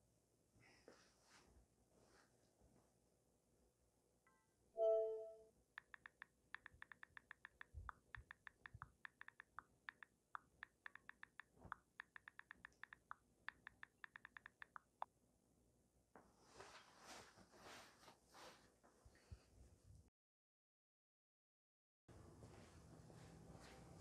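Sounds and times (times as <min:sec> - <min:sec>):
phone keyboard clicks: 0:05.8 - 0:15.1.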